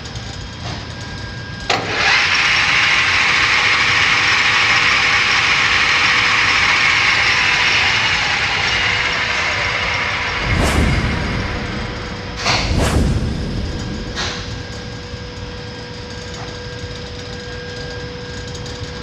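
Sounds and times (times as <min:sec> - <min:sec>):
metal lathe whirring: 0:01.7 - 0:15.6.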